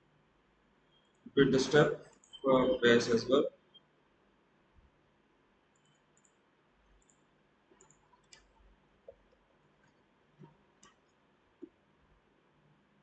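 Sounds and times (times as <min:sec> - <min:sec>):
mouse and keyboard clicks: 0:07.8 - 0:09.3.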